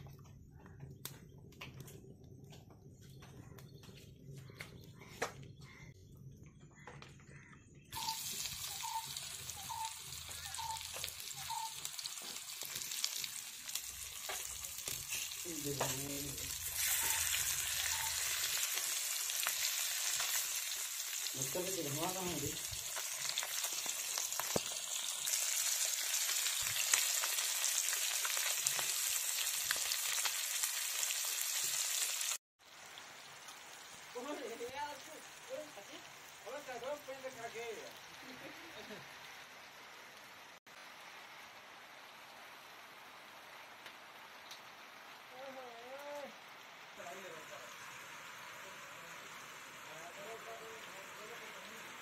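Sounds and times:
fish frying in hot oil: 7.9s - 40.2s, 44.6s - 52.0s.

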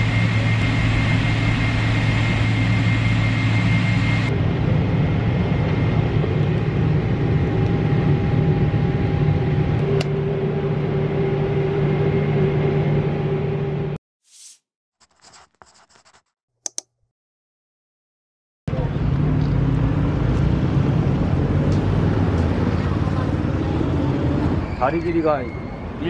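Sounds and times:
low engine hum: 0.0s - 14.0s, 18.7s - 24.6s.

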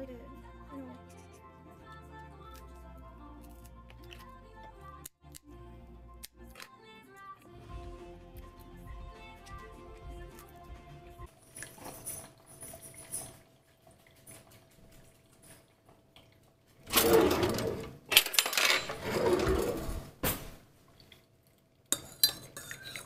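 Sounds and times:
metal utensils rattling: 11.4s - 13.4s, 16.9s - 20.1s, 21.9s - 23.0s
wooden drawer pulled open: 16.9s - 18.0s, 18.8s - 20.2s
spoon clinking against ceramic mug: 21.9s - 23.0s.

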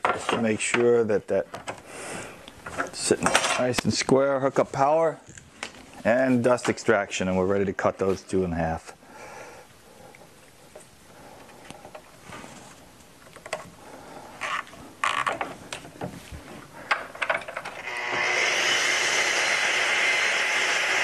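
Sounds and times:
saw motor running: 17.8s - 21.0s.

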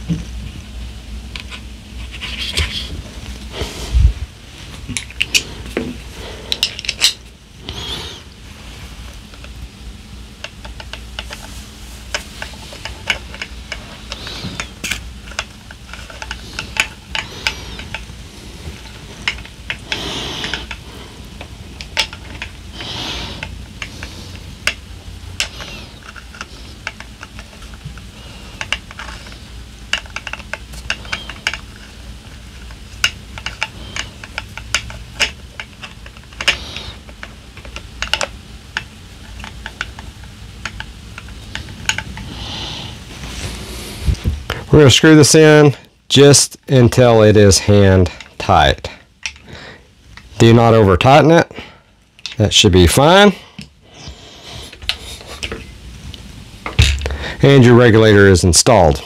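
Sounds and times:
screwdriver clicking and ticking: 37.2s - 39.9s.

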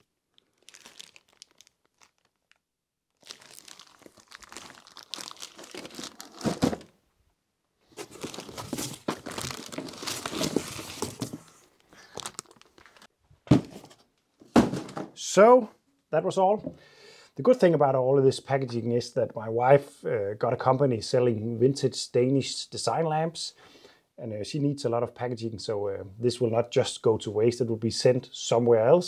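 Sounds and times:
plastic packaging crinkling: 0.0s - 6.9s, 7.9s - 13.1s
thud: 13.5s - 13.9s, 14.5s - 15.1s.

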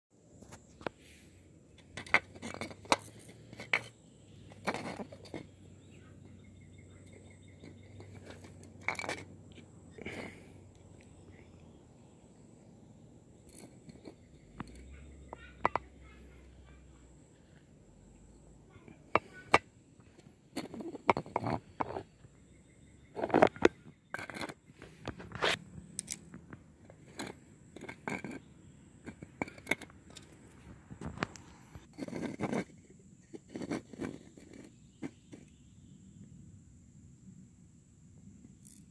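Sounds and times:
plastic container scraping and clicking: 1.8s - 5.5s, 7.6s - 9.6s, 23.1s - 26.3s, 29.0s - 35.5s.

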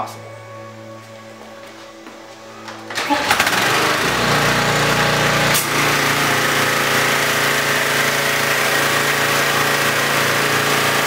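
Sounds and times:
pressure washer engine running: 2.9s - 11.0s.

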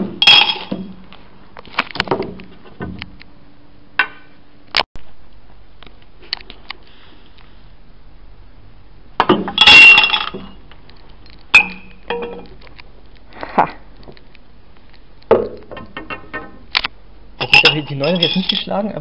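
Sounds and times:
sharp glass clinks: 0.2s - 0.8s, 9.6s - 10.6s, 11.6s - 12.5s, 17.4s - 18.8s
coins clinking into glasses: 9.6s - 10.6s, 17.4s - 18.7s.

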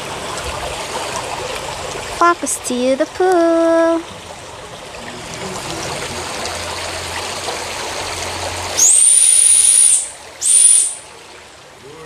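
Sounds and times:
waterfall splashing into pool: 3.4s - 12.0s
high-pitched whistle: 8.8s - 11.0s.

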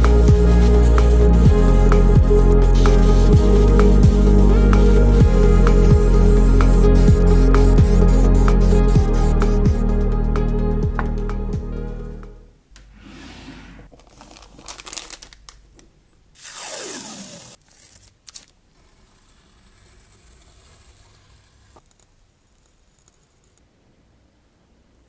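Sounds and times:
drawer sliding open: 12.9s - 13.9s
tape tearing off roll: 16.4s - 18.6s
blade scraping along ruler: 18.8s - 21.9s.

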